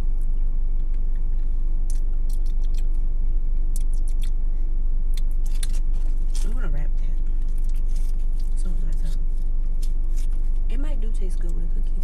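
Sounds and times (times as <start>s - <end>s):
car engine idling: 0.0s - 12.0s
wet lip clicks: 1.8s - 3.0s, 3.7s - 4.4s.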